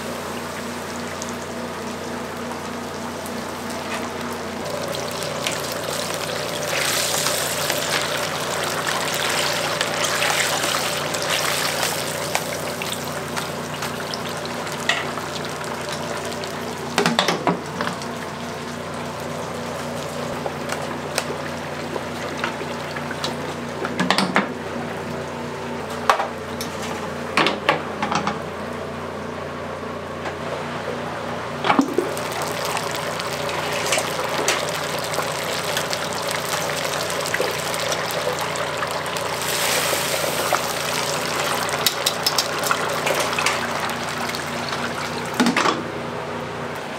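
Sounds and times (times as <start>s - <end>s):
hot oil bubbling and sizzling: 0.0s - 25.8s, 31.8s - 45.6s.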